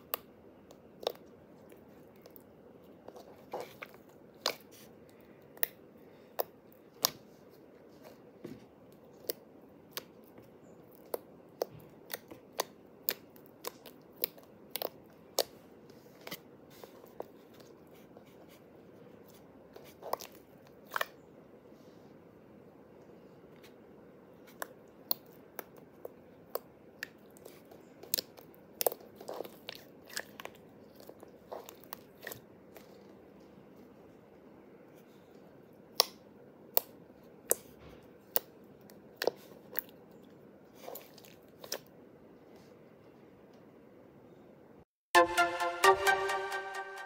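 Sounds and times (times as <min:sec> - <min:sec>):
wet slime clicks and pops: 0:35.9 - 0:36.9.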